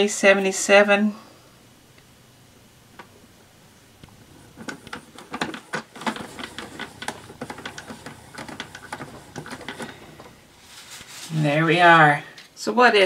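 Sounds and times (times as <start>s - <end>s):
cloth wiping plastic board: 4.2s - 11.8s.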